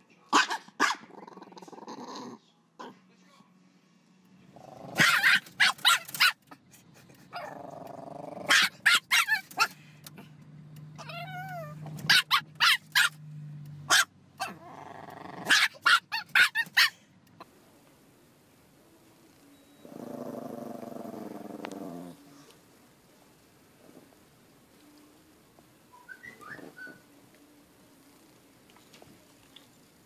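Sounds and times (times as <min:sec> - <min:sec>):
dogs barking: 0:00.3 - 0:01.1, 0:04.9 - 0:06.6, 0:08.4 - 0:09.8, 0:12.0 - 0:13.2, 0:13.9 - 0:14.6, 0:15.4 - 0:17.0
dog whining: 0:11.0 - 0:13.1, 0:26.0 - 0:27.0.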